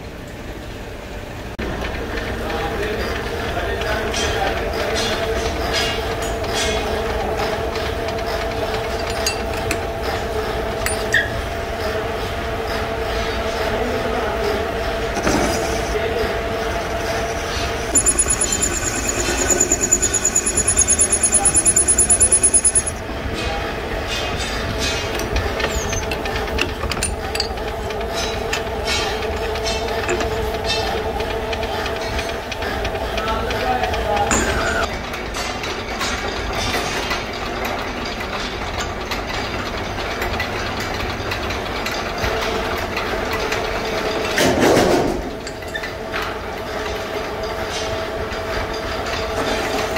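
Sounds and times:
workshop machinery hum: 0.0 - 49.9
metal lathe humming: 16.7 - 23.0
sharp metal clinks: 18.0 - 23.0
steel chips rattling: 18.0 - 23.0.

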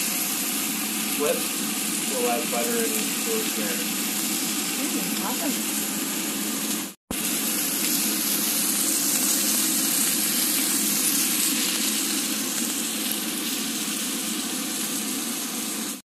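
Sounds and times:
steak sizzling in a pan: 0.0 - 16.0.

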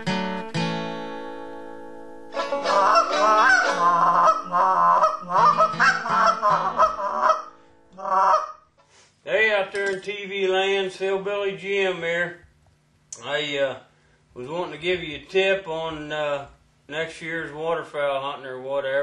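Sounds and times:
acoustic guitar chord: 0.0 - 8.0
goose call honking: 2.4 - 8.6.

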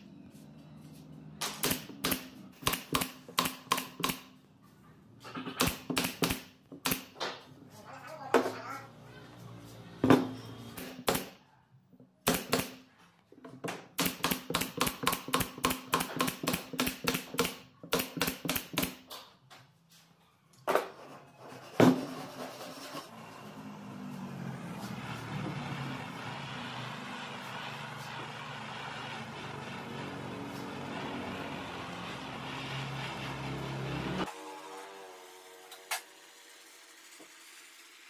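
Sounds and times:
nail gun firing: 1.4 - 4.4, 5.4 - 7.4, 10.8 - 11.4, 12.2 - 12.9, 13.9 - 19.2
gas torch hissing: 24.9 - 34.1.

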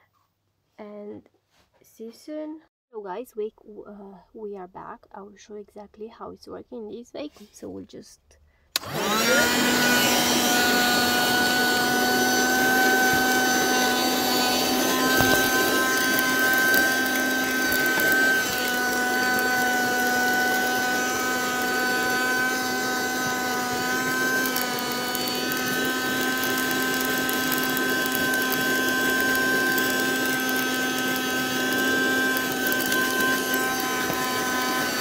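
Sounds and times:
handheld vacuum cleaner running: 8.8 - 35.0.

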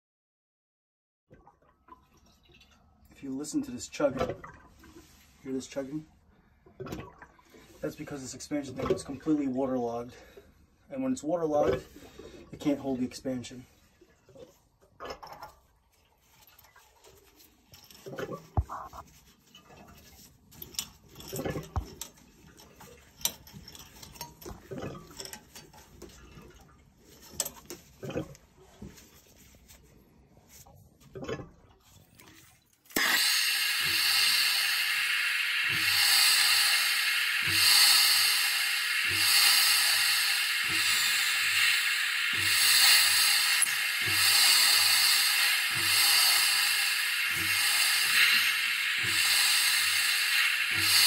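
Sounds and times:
plumbing fittings clicking: 20.6 - 28.4, 31.0 - 51.0
torch hissing: 32.9 - 51.0.

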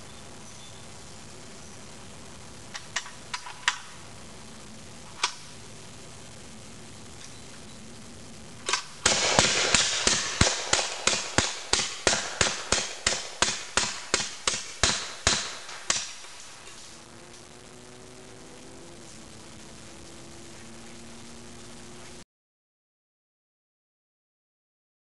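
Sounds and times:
gatling gun firing: 8.7 - 16.4.

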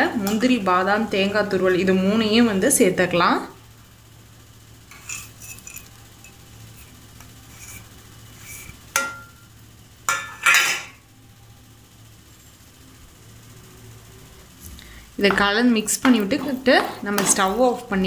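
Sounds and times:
steel plate scraping a pan: 4.9 - 5.9, 6.7 - 9.3.

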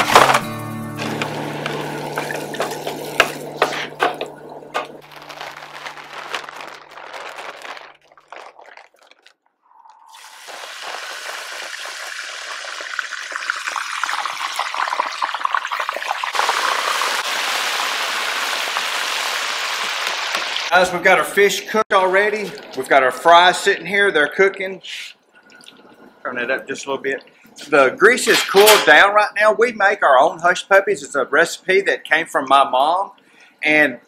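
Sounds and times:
fish deep-frying in oil: 10.0 - 20.7.

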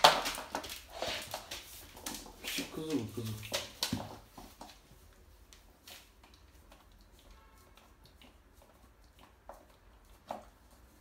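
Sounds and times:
puppy chewing clicks: 6.1 - 11.0.

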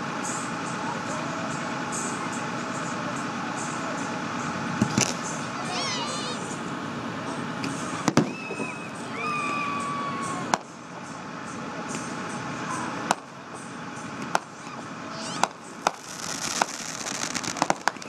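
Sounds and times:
fireworks crackling: 4.7 - 6.4, 14.3 - 18.0
fireworks bangs: 4.8 - 5.2, 8.0 - 8.8, 15.1 - 18.0.

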